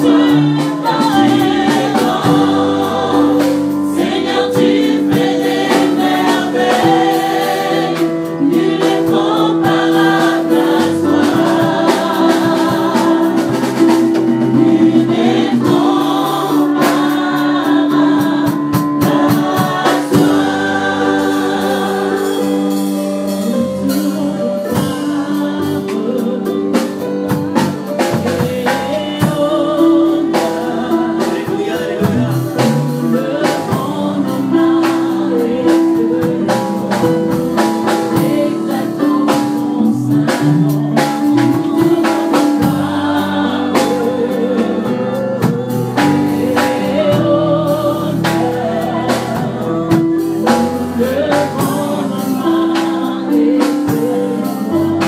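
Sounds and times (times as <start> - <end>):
band with drums: 0.0 - 55.0
group singing gospel: 0.0 - 55.0.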